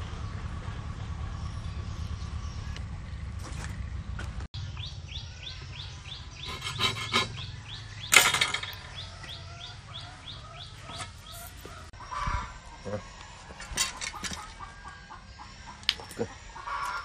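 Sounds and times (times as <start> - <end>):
bird chirping: 0.0 - 17.0
low steady outdoor hum: 0.0 - 17.0
metal clatter on saw blade: 6.4 - 7.5, 8.1 - 9.0.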